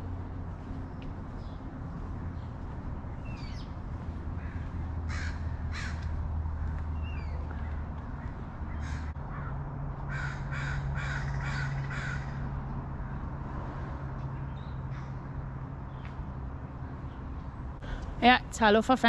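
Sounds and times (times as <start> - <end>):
crow cawing: 4.4 - 6.1, 8.7 - 12.5.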